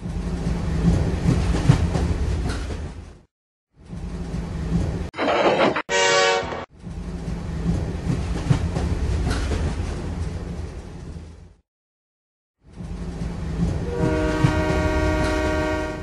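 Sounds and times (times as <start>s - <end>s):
train horn blast: 5.9s - 6.7s, 13.8s - 16.0s.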